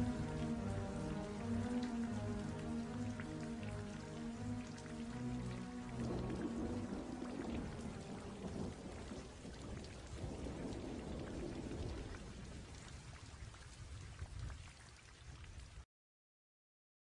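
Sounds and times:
rain falling: 0.0 - 15.8
low thunder rumble: 5.9 - 13.9.

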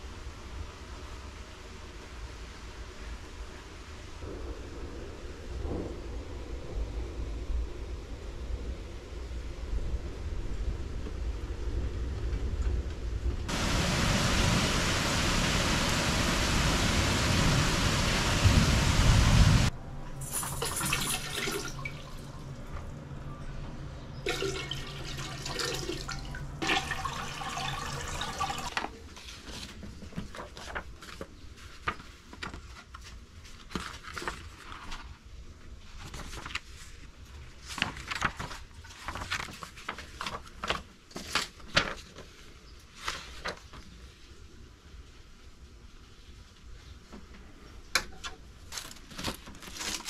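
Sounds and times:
low hum: 4.2 - 27.0
toilet water running: 13.5 - 22.9, 24.2 - 28.9
paper rustling and tapping: 28.7 - 35.2, 36.0 - 36.9, 37.6 - 42.4, 48.0 - 50.0.

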